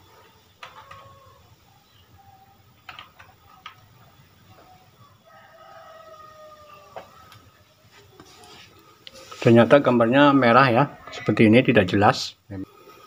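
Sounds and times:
rooster crowing: 4.6 - 8.6, 10.3 - 11.5.

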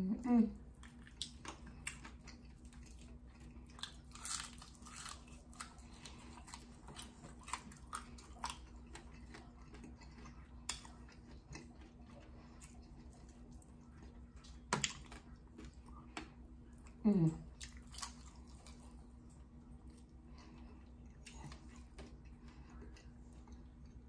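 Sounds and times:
person chewing food: 0.6 - 24.0
person humming mm: 17.0 - 17.4.

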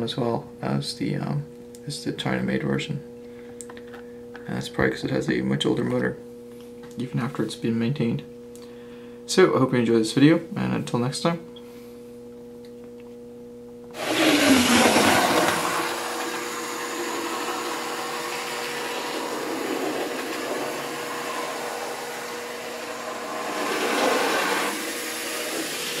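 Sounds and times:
faint steady hum: 0.0 - 23.8.

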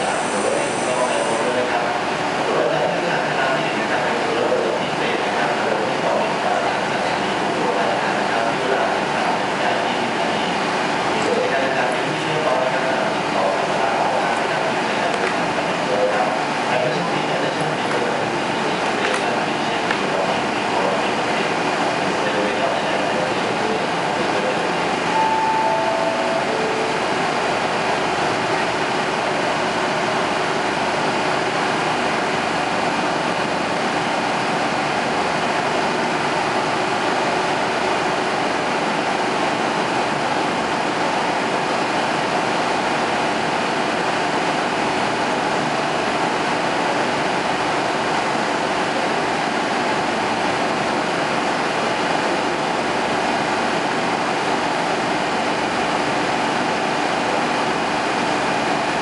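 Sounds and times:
diesel railcar idling: 0.0 - 3.0, 17.9 - 59.0
falling three-note tone: 25.1 - 28.0.

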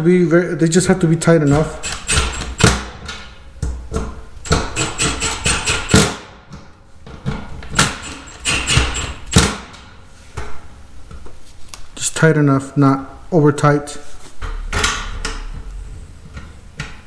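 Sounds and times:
impact driver hammering with whine: 1.5 - 3.0, 4.4 - 6.4, 7.8 - 9.8.

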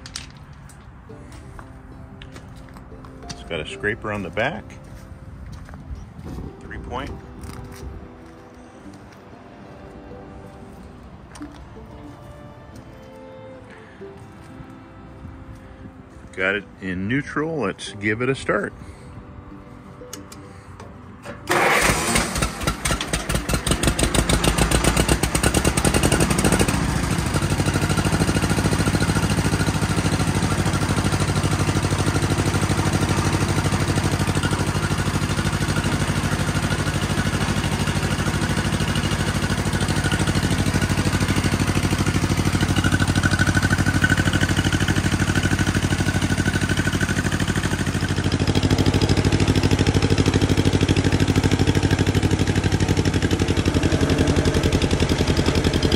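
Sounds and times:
tractor engine starting and idling: 19.9 - 55.9.

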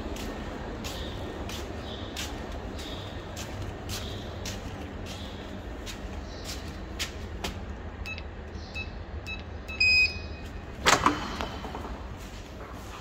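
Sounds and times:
steady low hum: 0.0 - 13.0
short electronic beeps: 8.8 - 10.4.

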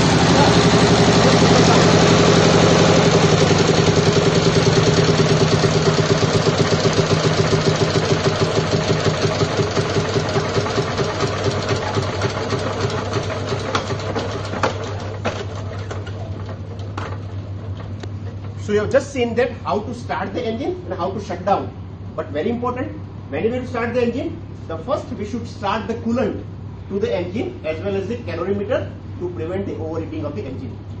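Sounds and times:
diesel engine knocking: 0.0 - 15.2.

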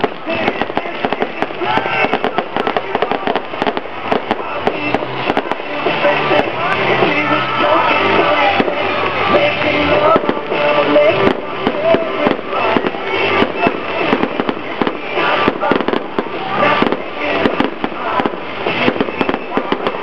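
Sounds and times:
fireworks bangs and crackles: 0.0 - 20.0
loud music: 0.0 - 20.0.

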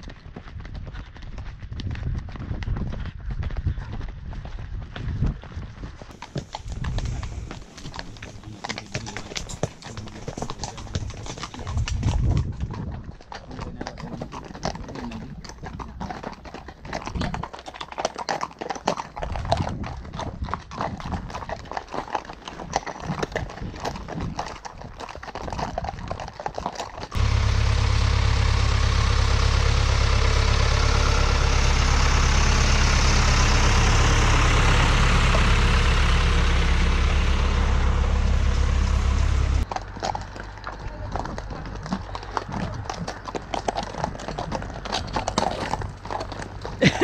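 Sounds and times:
horse hooves on gravel: 0.0 - 47.0
wind buffeting microphone: 0.6 - 6.0, 10.9 - 13.3, 19.2 - 21.5.

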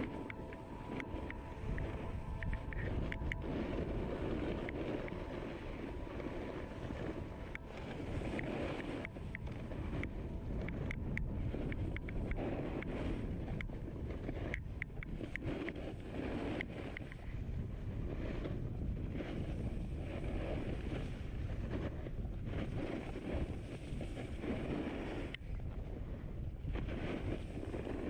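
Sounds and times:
short ticks: 0.0 - 3.4
wind buffeting microphone: 0.0 - 28.0
snowboard scraping over snow: 2.8 - 9.1, 9.7 - 25.3, 26.7 - 28.0.

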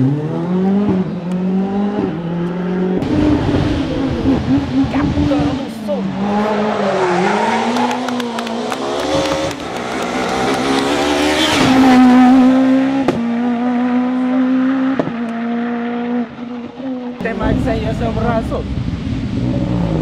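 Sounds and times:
rally car engine revving: 0.0 - 20.0.

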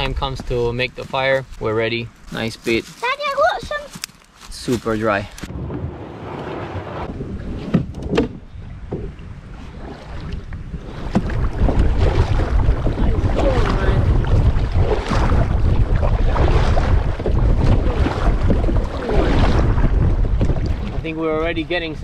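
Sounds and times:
paddle strokes: 0.4 - 21.1
water splashing and gurgling: 2.5 - 22.0
wind buffeting microphone: 5.0 - 22.0.

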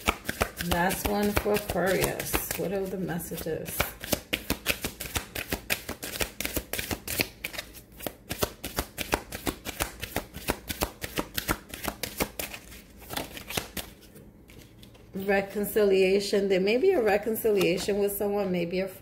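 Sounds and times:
cards being shuffled: 0.0 - 15.1.

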